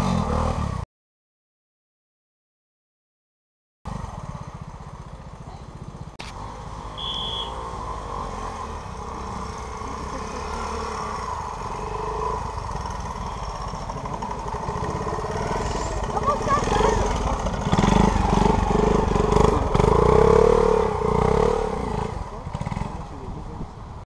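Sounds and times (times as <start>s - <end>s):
motorcycle engine at low revs: 0.0s - 0.8s, 3.9s - 23.9s
brief high tone: 7.0s - 7.6s.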